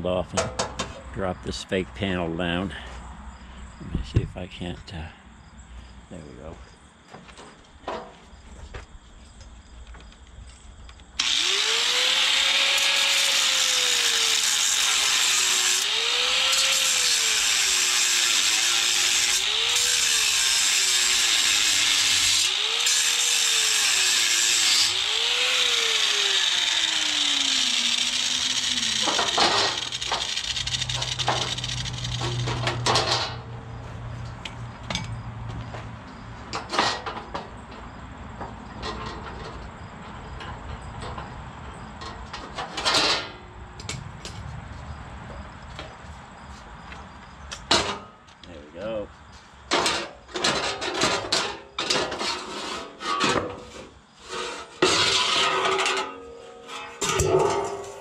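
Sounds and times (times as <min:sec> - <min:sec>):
power tool cutting steel: 0:11.2 - 0:33.4.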